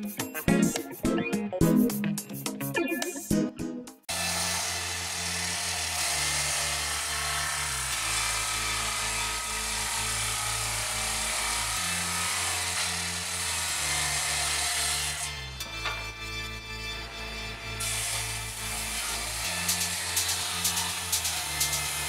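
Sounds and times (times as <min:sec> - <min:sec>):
background music with bass line: 0:00.0 - 0:04.1, 0:15.2 - 0:22.0
power tool cutting wood: 0:04.1 - 0:22.0.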